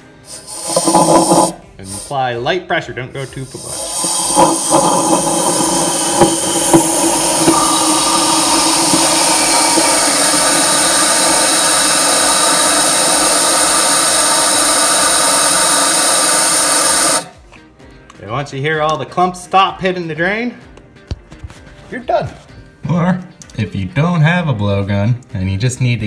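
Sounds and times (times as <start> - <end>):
compressed air hissing: 0.0 - 2.4, 3.2 - 17.4.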